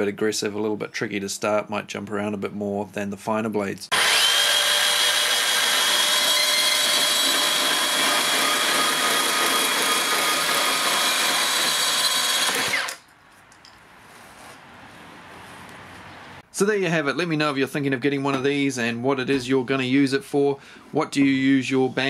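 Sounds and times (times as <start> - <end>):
band saw cutting plastic pipe: 3.9 - 13.0.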